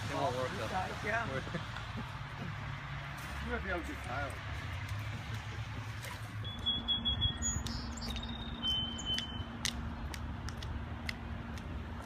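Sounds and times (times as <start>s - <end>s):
bird whistling high notes: 6.4s - 9.5s.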